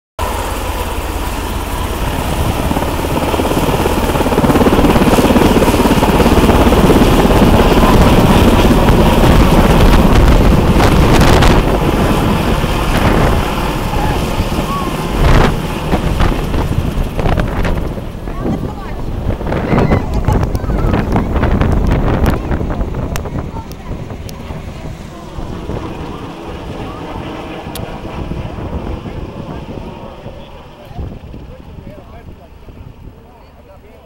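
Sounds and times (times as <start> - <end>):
helicopter rotor and turbine: 0.2 - 34.0
wind buffeting microphone: 1.4 - 33.4.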